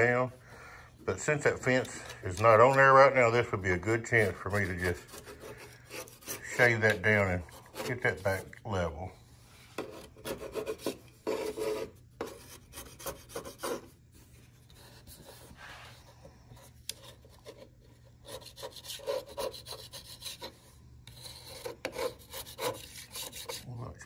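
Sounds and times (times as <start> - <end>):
metal scraper scraping wood: 1.2 - 8.5, 9.8 - 13.9, 16.9 - 23.8.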